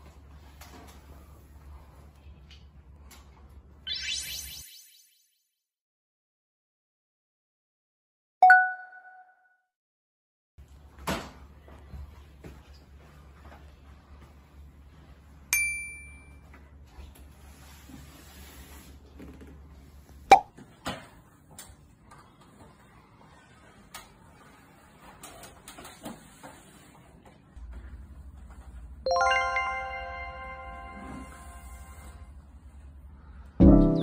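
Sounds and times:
bright ding: 8.4s - 9.3s, 15.6s - 16.4s
ringing musical chime chord: 29.1s - 32.1s.

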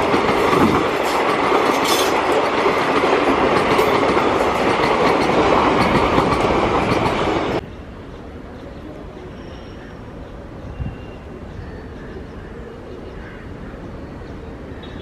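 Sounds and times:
train coaches rushing past: 0.0s - 12.0s.

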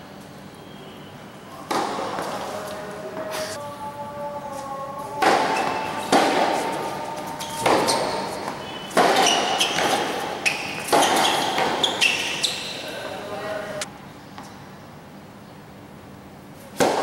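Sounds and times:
tennis ball hitting racquet: 1.6s - 3.5s, 5.1s - 12.9s, 16.7s - 17.0s.

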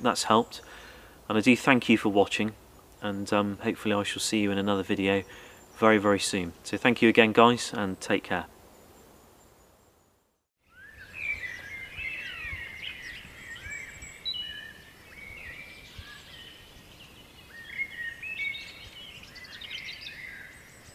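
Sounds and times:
songbirds chirping and whistling: 4.0s - 8.2s, 8.8s - 20.9s.

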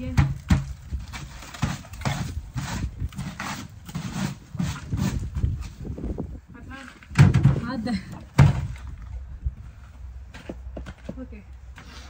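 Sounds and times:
plastic bin crunching and knocking: 0.0s - 5.6s, 7.0s - 9.0s.

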